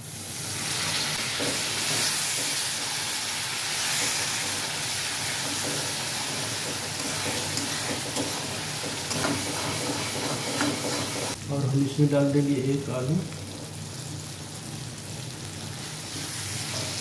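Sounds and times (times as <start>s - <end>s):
masala sizzling in a pan: 0.0s - 17.0s
spatula stirring: 3.8s - 11.4s.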